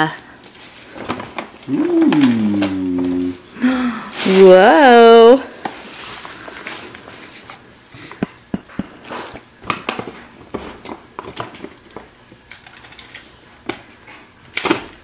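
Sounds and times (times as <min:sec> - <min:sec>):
paper bag rustling: 0:00.4 - 0:03.4, 0:04.0 - 0:07.6.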